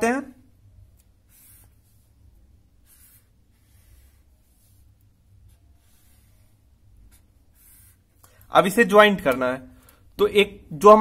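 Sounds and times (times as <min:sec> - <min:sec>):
pen scratching on paper: 0:00.9 - 0:08.2.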